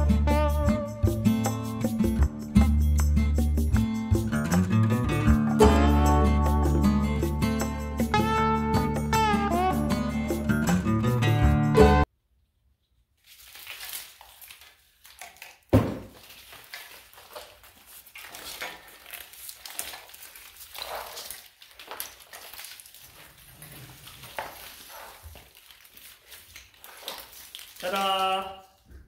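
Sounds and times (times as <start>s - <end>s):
wiring harness rustling: 12.8s - 29.0s.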